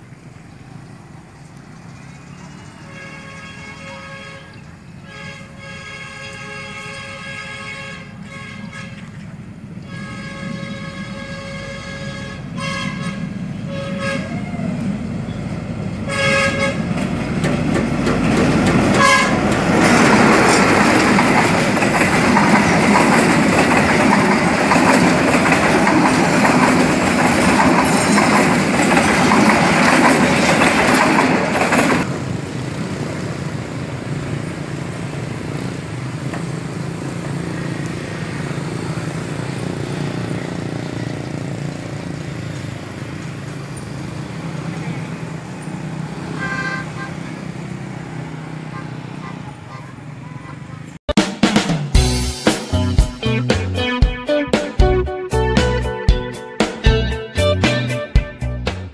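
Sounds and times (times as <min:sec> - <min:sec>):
train rumble and wheel clatter: 0:00.0 - 0:51.0
train horn blasts: 0:02.8 - 0:09.1, 0:09.8 - 0:14.8, 0:16.0 - 0:17.0, 0:18.9 - 0:19.6.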